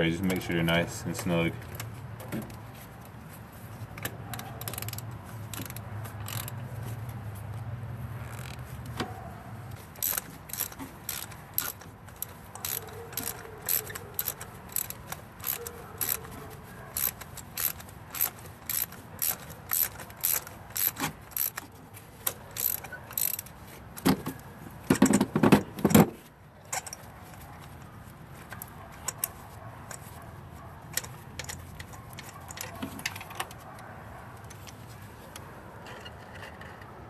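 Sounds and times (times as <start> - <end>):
hand ratchet clicking: 4.3 - 6.6, 10.0 - 23.5.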